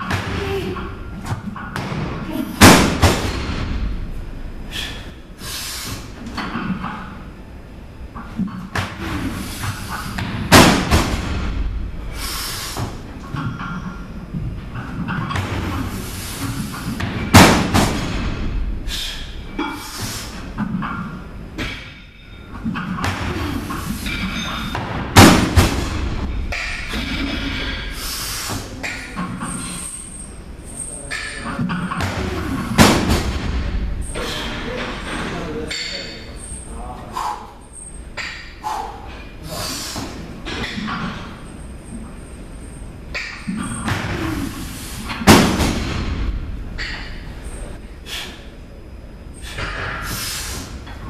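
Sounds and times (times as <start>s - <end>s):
barbell crashing onto wooden blocks: 1.6s - 3.8s, 10.2s - 11.7s, 17.0s - 18.5s, 24.1s - 27.8s, 31.2s - 33.8s, 45.2s - 47.2s.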